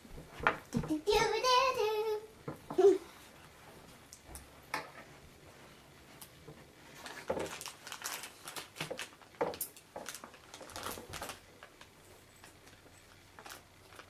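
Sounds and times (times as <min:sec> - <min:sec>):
plastic bag crinkling: 0:06.9 - 0:14.0.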